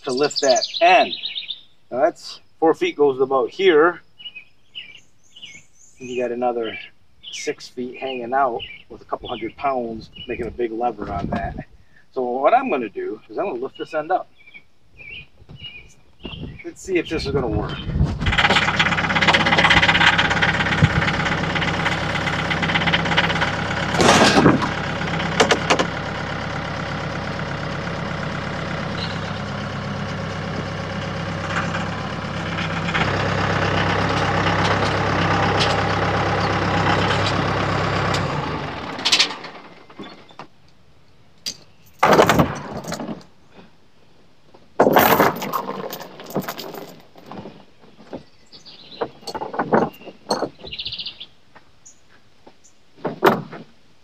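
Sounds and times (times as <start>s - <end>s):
tractor diesel engine running: 16.9s - 40.7s
steel chain clanking: 41.5s - 43.2s, 44.8s - 47.5s, 49.0s - 50.6s.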